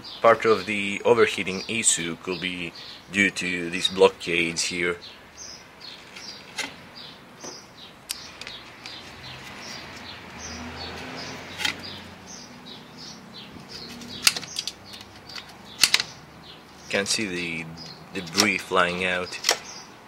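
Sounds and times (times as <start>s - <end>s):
small birds chirping: 0.0s - 20.0s
clicks of handling engine parts: 13.6s - 16.2s, 17.8s - 18.6s, 19.4s - 19.7s.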